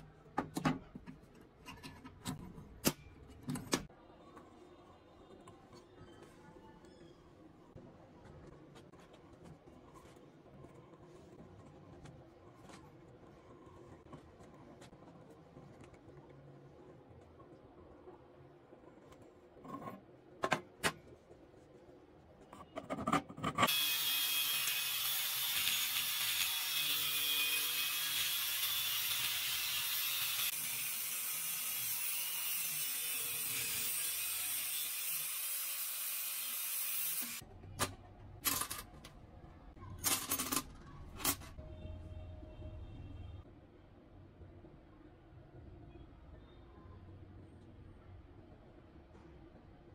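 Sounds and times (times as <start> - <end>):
angle grinder cutting steel: 23.7 - 37.4.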